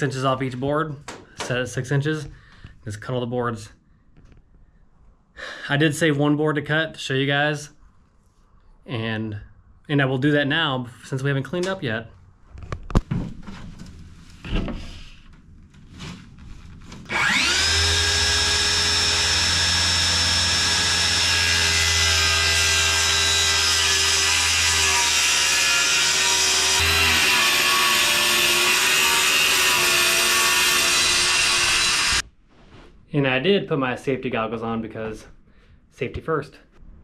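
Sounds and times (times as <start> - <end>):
circular saw cutting plywood: 17.0 - 32.2.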